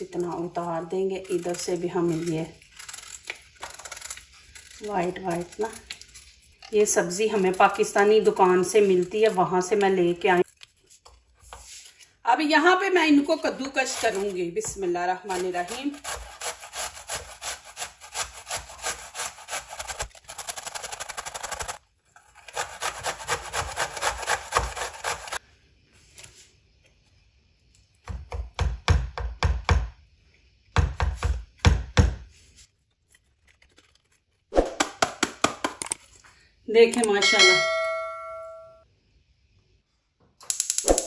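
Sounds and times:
grating on metal grater: 13.6s - 14.5s, 15.2s - 25.4s.

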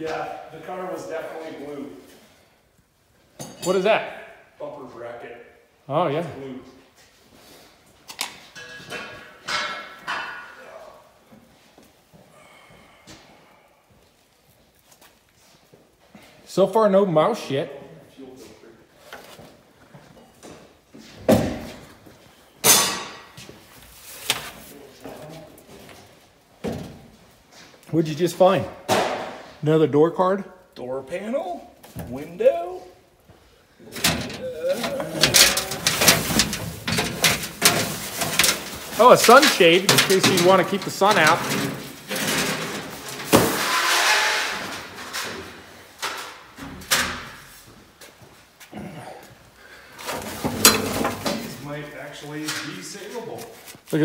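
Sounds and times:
rustling and scraping: 18.3s - 28.6s, 31.8s - 48.7s, 49.9s - 54.0s
car parts thudding down: 33.9s - 43.9s, 50.0s - 51.6s.

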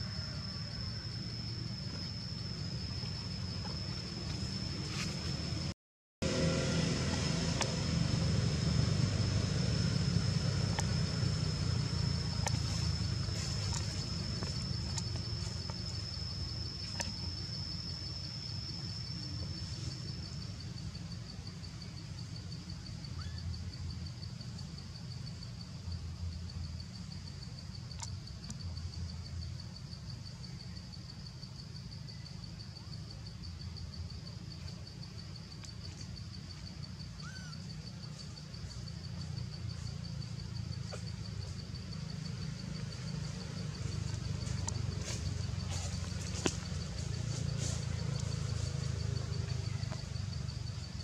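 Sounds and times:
low rumble: 0.9s - 19.9s
insect trilling: 7.6s - 24.6s, 35.1s - 51.0s.

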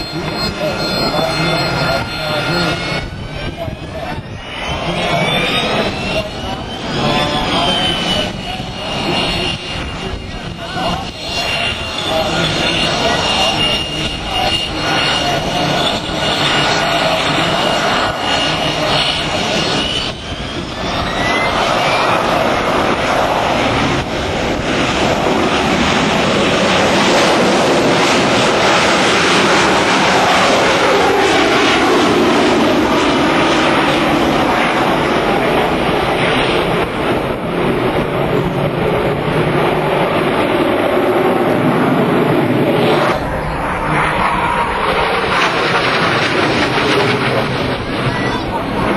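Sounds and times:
jet engine roar: 0.0s - 48.9s.

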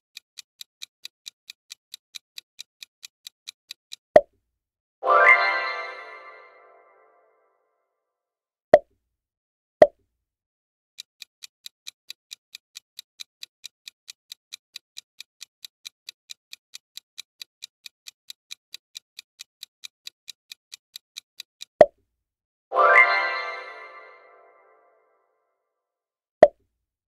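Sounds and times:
clock-like ticking: 0.1s - 4.3s, 11.0s - 21.9s.

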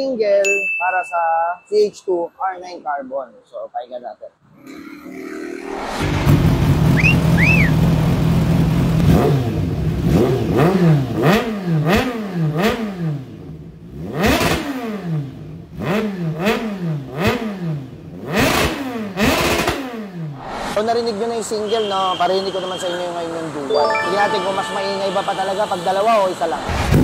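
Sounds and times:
motorcycle engine revving: 5.9s - 20.4s.

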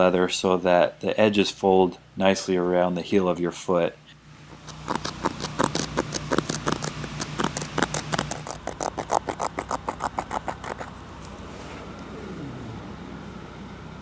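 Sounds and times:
scissors snipping leather: 4.6s - 10.9s.

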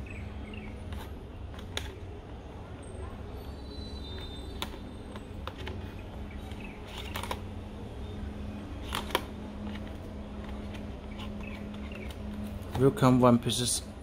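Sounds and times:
packaging clicks and scrapes: 4.1s - 7.4s, 8.8s - 12.7s.

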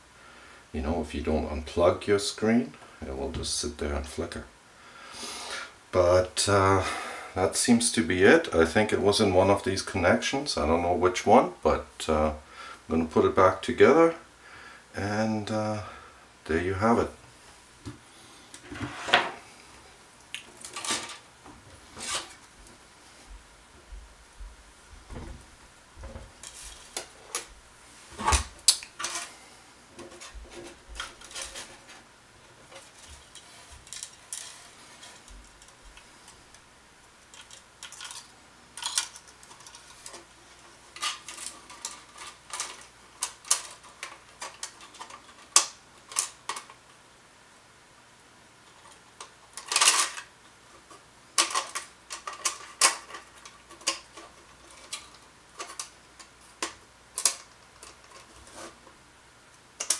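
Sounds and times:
plastic parts clicking and clattering: 20.5s - 21.2s, 28.2s - 29.3s, 30.0s - 32.0s, 32.7s - 36.1s, 37.2s - 46.9s, 48.6s - 59.0s.

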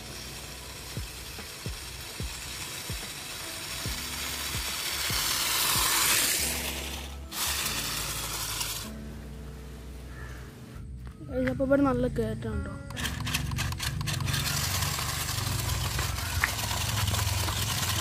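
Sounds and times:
toy car electric motors whirring: 0.0s - 9.0s, 12.9s - 18.0s.

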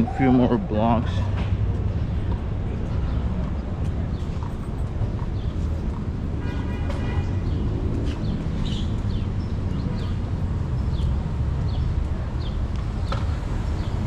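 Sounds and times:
low city rumble: 0.0s - 14.0s
small birds chirping: 7.2s - 14.0s.

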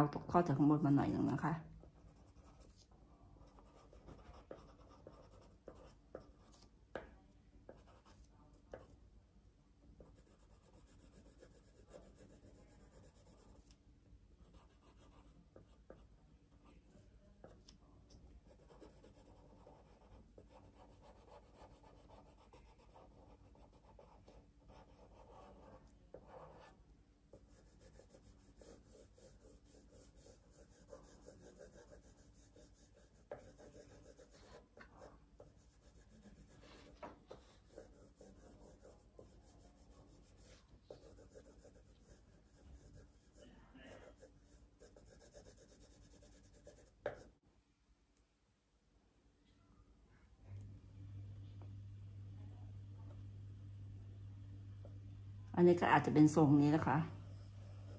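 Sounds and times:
pencil scratching on paper: 0.6s - 6.7s, 7.7s - 9.0s, 10.0s - 13.8s, 14.4s - 17.7s, 18.4s - 47.3s, 56.1s - 57.9s.

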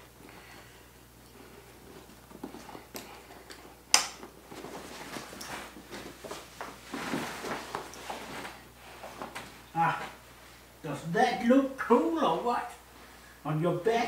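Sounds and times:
dry bag rustling: 4.4s - 10.2s.

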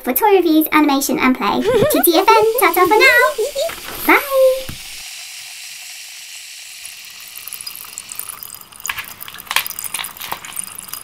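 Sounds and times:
high fizzing hiss: 1.6s - 8.6s
small pops and crackles: 8.2s - 11.0s.

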